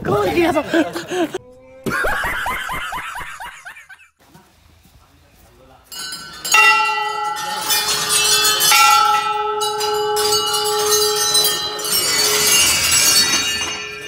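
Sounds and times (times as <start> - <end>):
temple bells clanging: 5.9 - 14.0.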